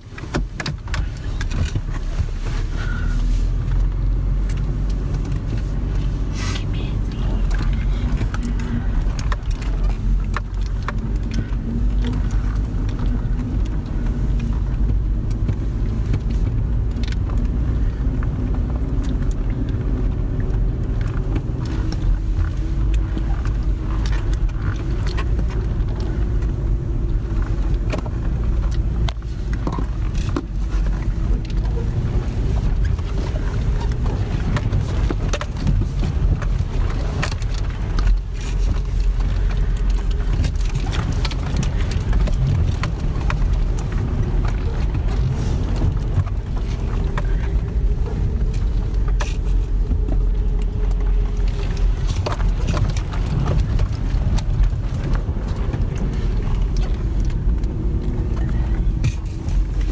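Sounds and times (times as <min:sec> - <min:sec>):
truck engine and tyres rumbling: 0:00.0 - 0:59.9
clicks and rattles: 0:07.0 - 0:59.9.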